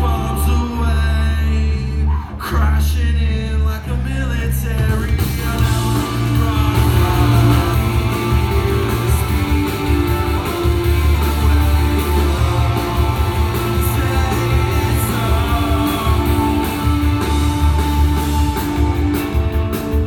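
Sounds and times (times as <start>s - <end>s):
live rock band playing: 4.8s - 20.0s.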